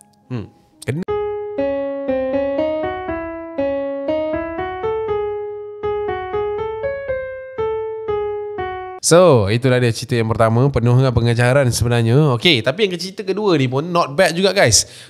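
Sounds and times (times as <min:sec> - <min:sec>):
keyboard melody: 0:00.0 - 0:09.0.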